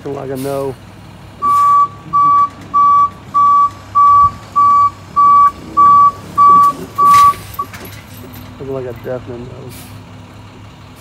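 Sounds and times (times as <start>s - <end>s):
truck reverse alarm beeping: 1.4s - 7.9s.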